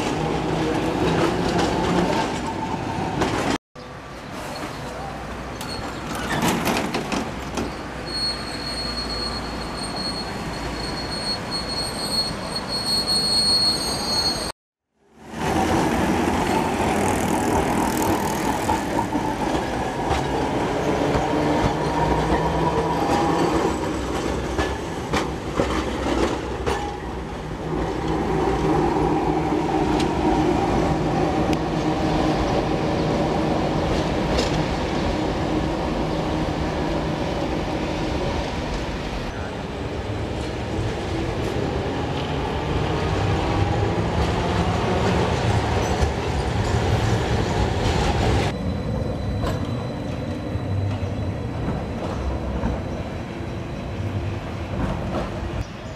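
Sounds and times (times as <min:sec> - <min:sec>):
tram wheels rumbling on rails: 0:00.0 - 0:03.6, 0:04.2 - 0:14.5, 0:15.2 - 0:55.9
wheels clacking over rail joints: 0:04.5 - 0:07.9, 0:15.4 - 0:30.2.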